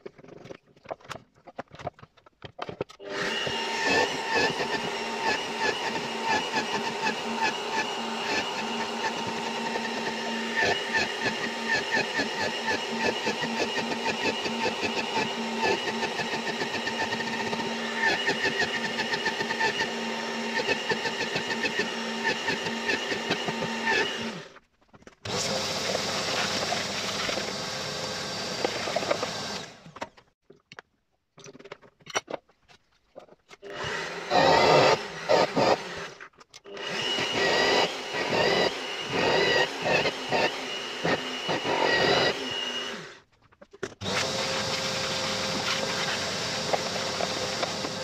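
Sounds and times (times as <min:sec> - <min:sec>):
drill press motor hum: 0:03.0 - 0:24.5, 0:25.3 - 0:30.0, 0:33.6 - 0:43.2
drill bit cutting wood: 0:03.0 - 0:24.6, 0:25.3 - 0:30.0, 0:33.6 - 0:43.2, 0:44.0 - 0:48.0.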